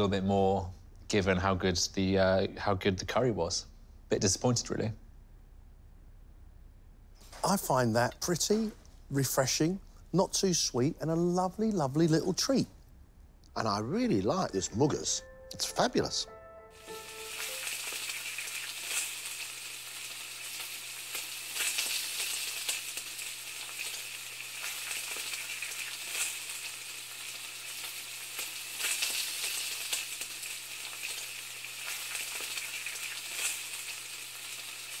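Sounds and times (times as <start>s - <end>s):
food sizzling in a pan: 16.8s - 35.0s.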